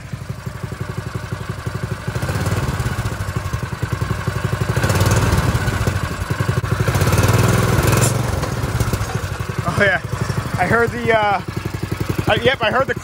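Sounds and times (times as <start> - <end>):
go-kart engine revving: 0.0 - 13.0.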